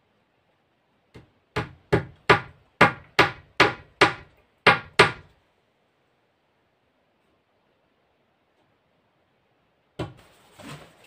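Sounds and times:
hammer driving nail into wood: 1.6 - 5.3.

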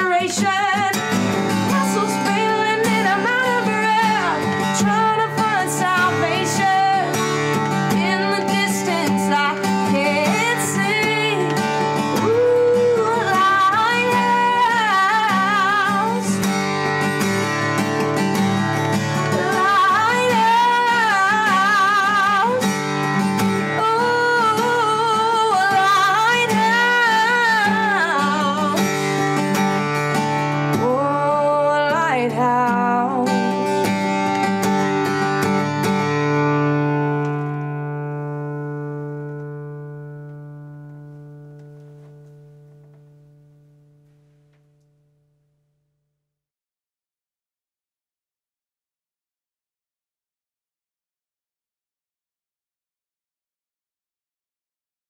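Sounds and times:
woman singing folk song: 0.0 - 37.2
acoustic guitar: 0.0 - 45.6.

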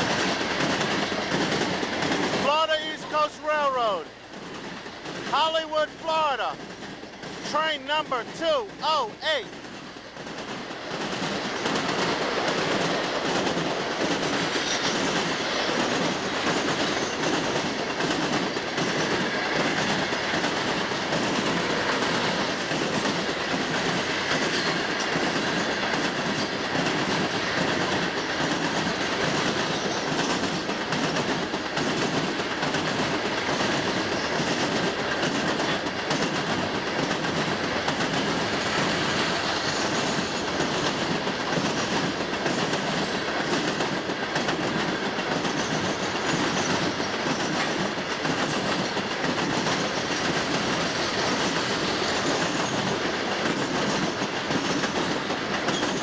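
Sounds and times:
steel wheels running on rails: 0.0 - 56.0.

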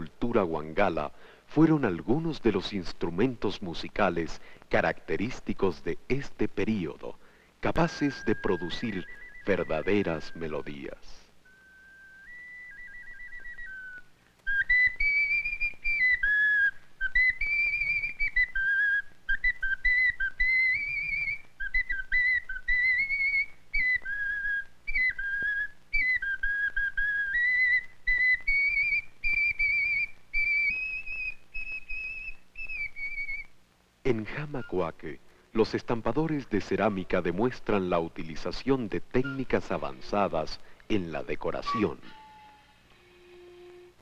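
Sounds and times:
ocarina playing a tune: 7.8 - 33.5, 39.2 - 40.5, 41.2 - 44.0.

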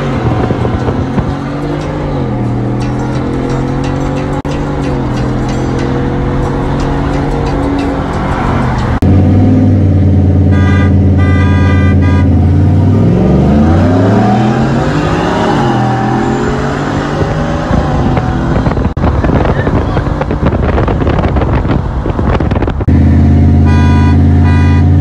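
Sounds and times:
car engines droning: 0.0 - 25.0
engines revving under acceleration: 0.0 - 25.0
car horn honks: 10.4 - 12.5, 23.6 - 25.0.

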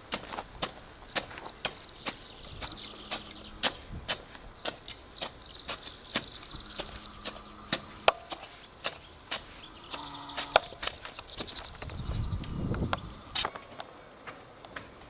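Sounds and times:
digging tool chopping soil: 0.0 - 11.6
birds trilling: 0.5 - 13.6.

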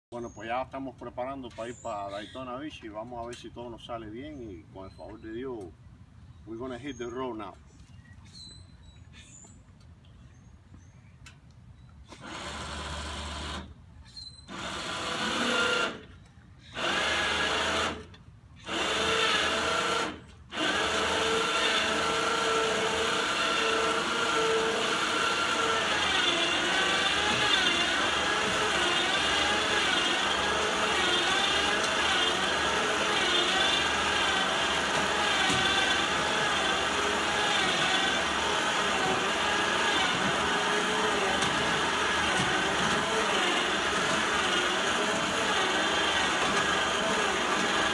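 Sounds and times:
electric motor whining: 16.8 - 47.9.

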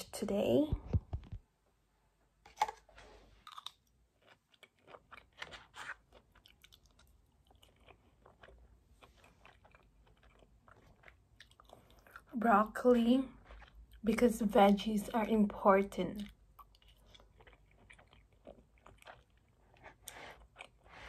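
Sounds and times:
chewing food: 3.4 - 14.9, 16.1 - 21.0.

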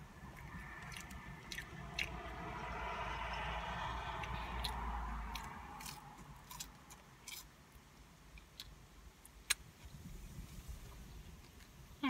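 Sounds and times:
person chewing with wet smacks: 0.2 - 2.8, 4.2 - 7.5.

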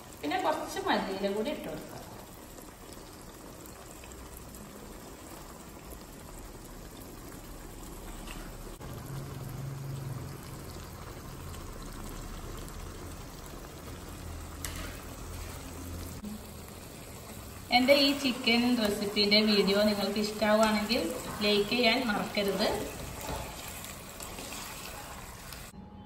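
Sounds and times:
sauce bubbling and sizzling in wok: 0.0 - 25.8.

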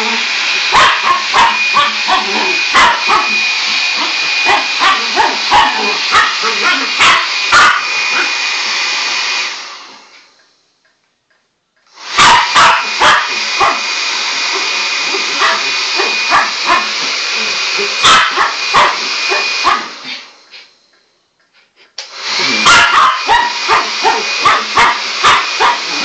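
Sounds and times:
hair dryer blowing: 0.0 - 10.7, 11.9 - 20.9, 22.0 - 26.0
dog barking: 0.7 - 3.4, 4.0 - 8.3, 12.2 - 13.8, 15.4 - 17.0, 18.0 - 19.9, 22.6 - 26.0.

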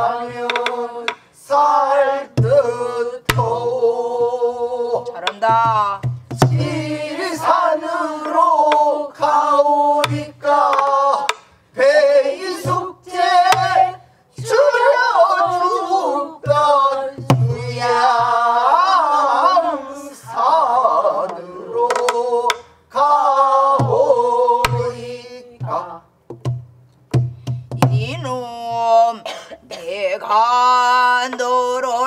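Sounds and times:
voices singing held phrases: 0.0 - 26.2, 27.8 - 32.0
barrel drum low thuds: 5.3 - 7.0, 25.6 - 28.2.

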